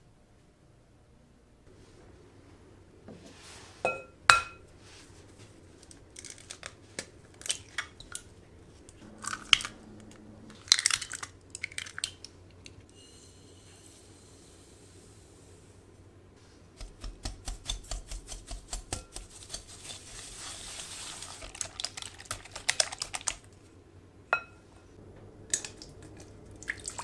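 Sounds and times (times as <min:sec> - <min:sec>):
eggshells crackling: 0:05.8 - 0:12.8, 0:16.8 - 0:23.6
sugar poured into bowl: 0:19.2 - 0:23.4.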